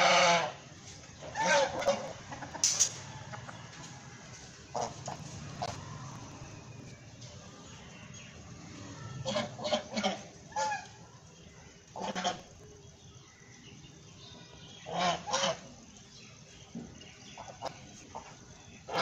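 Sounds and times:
goose honking: 0:00.0 - 0:00.6, 0:01.2 - 0:02.4, 0:04.7 - 0:05.7, 0:09.2 - 0:11.0, 0:12.0 - 0:12.4, 0:14.9 - 0:15.7.

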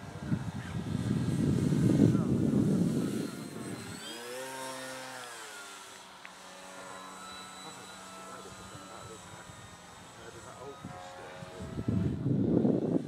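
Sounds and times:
model plane motor whine: 0:00.0 - 0:13.0.

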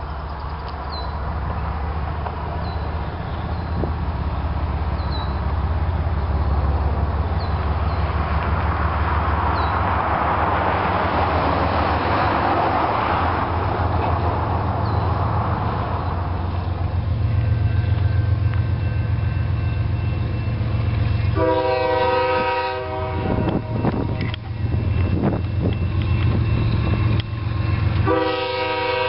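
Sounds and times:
diesel locomotive engines droning: 0:00.0 - 0:29.0
train air horn: 0:21.3 - 0:24.4, 0:27.8 - 0:29.0.

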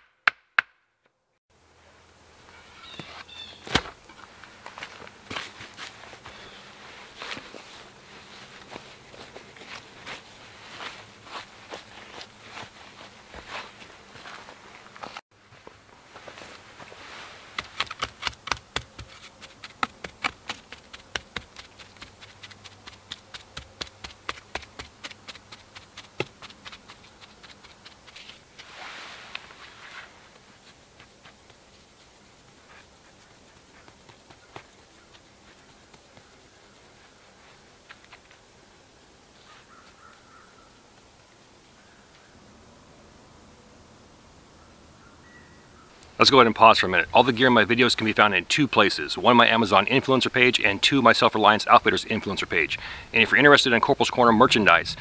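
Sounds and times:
wooden stick tapping dirt: 0:00.0 - 0:00.8, 0:17.6 - 0:28.2
dirt scraping: 0:02.5 - 0:38.4.

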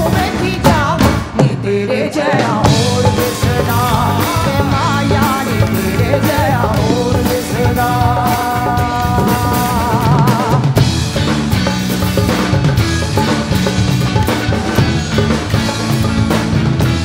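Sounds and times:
woman singing: 0:00.0 - 0:10.8
live pop band playing: 0:00.0 - 0:17.0.

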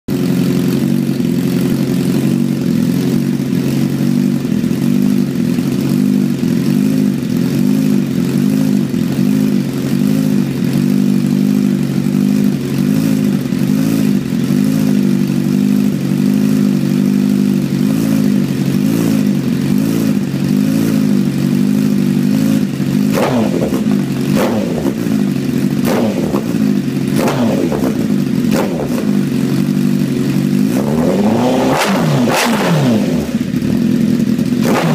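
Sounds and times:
motorcycle engine idling: 0:00.1 - 0:34.9
throttle blips revving: 0:30.9 - 0:33.3.

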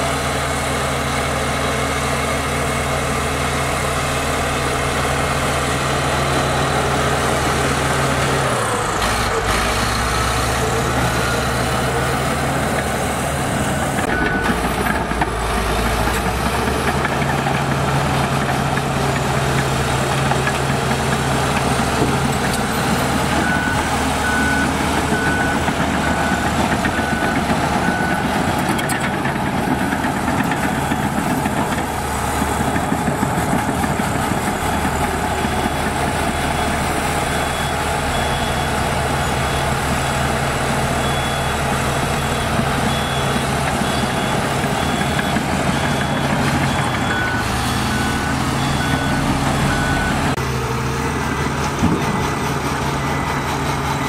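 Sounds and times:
heavy machinery diesel engines: 0:00.0 - 0:54.0
reversing alarm beeping: 0:10.0 - 0:18.8, 0:20.0 - 0:50.4.

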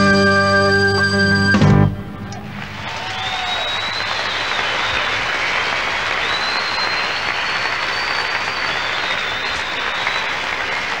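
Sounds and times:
audience applauding and cheering: 0:02.0 - 0:11.0
long high whistles: 0:02.9 - 0:05.3, 0:06.1 - 0:10.8.

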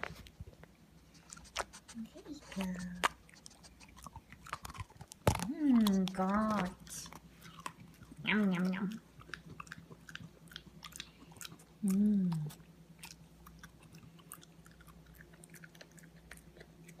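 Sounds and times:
faint low hum: 0:00.0 - 0:17.0
pets crunching treats: 0:00.0 - 0:17.0.

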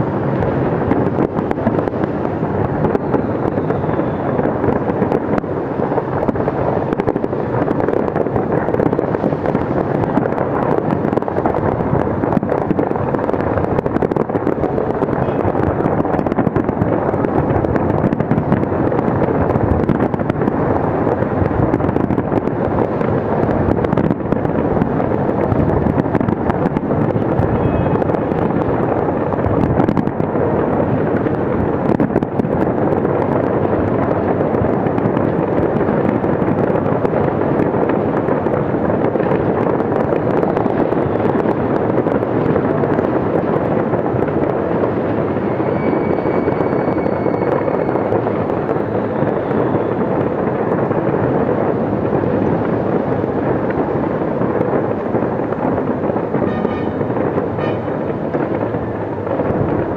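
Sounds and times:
fireworks bursting and crackling: 0:00.1 - 0:59.9
faint firework whistle: 0:45.4 - 0:48.2.

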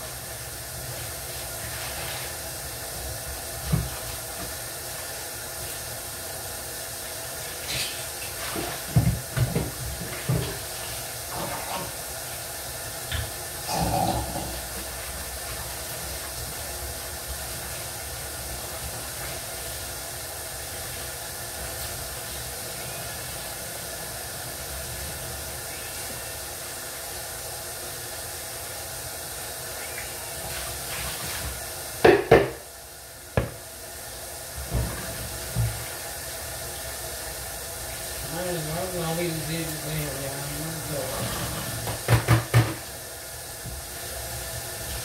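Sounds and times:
kitchen hiss: 0:00.0 - 0:45.0
pots and dishes clattering: 0:13.7 - 0:14.7, 0:41.2 - 0:42.8.

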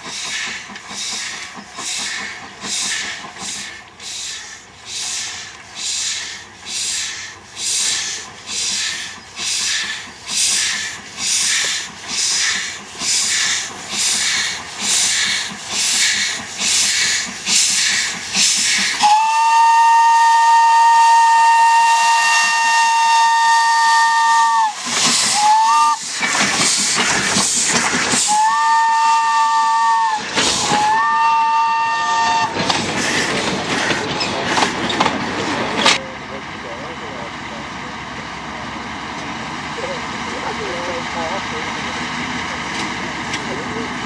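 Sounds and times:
steam locomotive chuffing: 0:00.0 - 0:44.0
train coaches rumbling past: 0:00.0 - 0:44.0
steam chime whistle: 0:19.0 - 0:26.0, 0:28.2 - 0:32.6.

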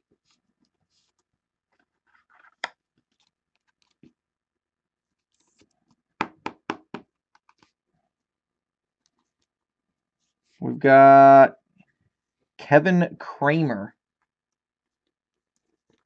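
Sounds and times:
cards rustling: 0:00.2 - 0:04.1.

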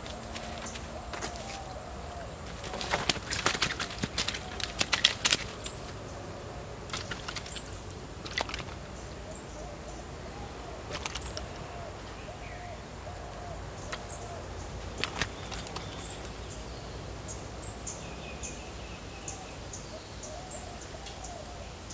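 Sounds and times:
fish flapping and slapping: 0:02.5 - 0:05.9, 0:06.9 - 0:08.9, 0:10.9 - 0:11.5, 0:15.0 - 0:16.2.

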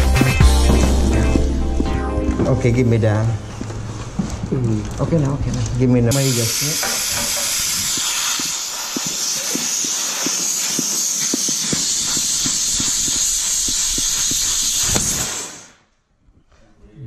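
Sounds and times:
gas hissing from pipe: 0:06.1 - 0:15.9.

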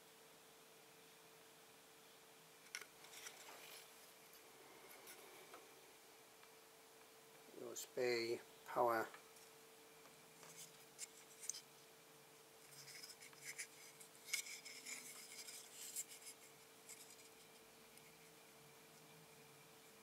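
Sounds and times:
faint steady hum: 0:00.0 - 0:20.0
soft rubbing with light clicks: 0:10.4 - 0:11.7, 0:12.6 - 0:18.3.

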